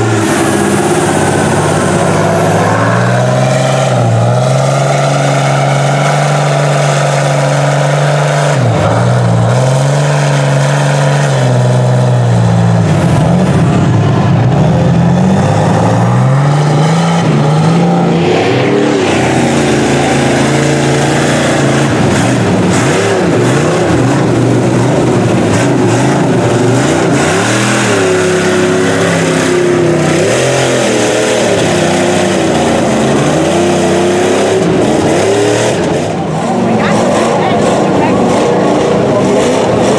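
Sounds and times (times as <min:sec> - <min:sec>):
truck engine revving: 0:00.0 - 0:39.9
tyres churning through mud: 0:00.0 - 0:39.9.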